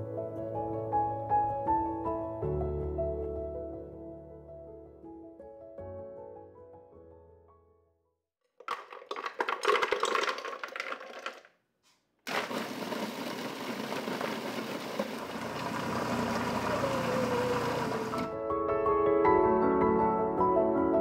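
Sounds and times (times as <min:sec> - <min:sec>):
frozen berries clattering into jar: 0:08.5 - 0:11.5
blender motor running: 0:12.3 - 0:18.4.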